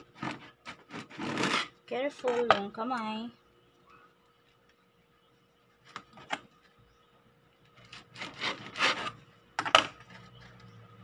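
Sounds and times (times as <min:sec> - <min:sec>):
bread knife sawing crust: 0:00.2 - 0:01.8, 0:07.8 - 0:09.2.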